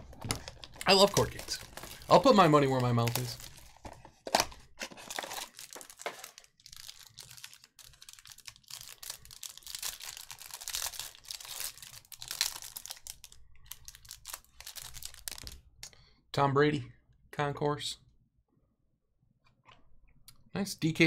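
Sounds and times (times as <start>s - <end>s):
plastic wrapper crinkling and tearing: 0.1s - 15.6s.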